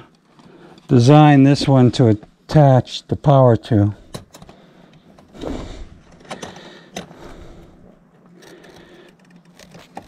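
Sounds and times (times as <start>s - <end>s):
pliers clicking and scraping wire: 8.2s - 10.0s.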